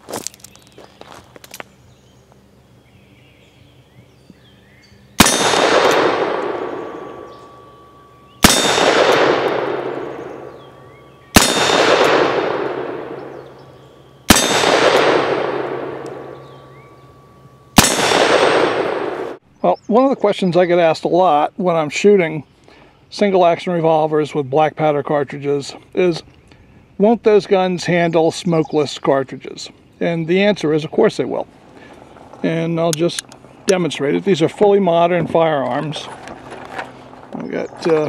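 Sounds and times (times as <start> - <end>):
revolver shots: 5.2 - 17.0, 17.8 - 19.4
steel target clanging and ringing: 5.2 - 19.4.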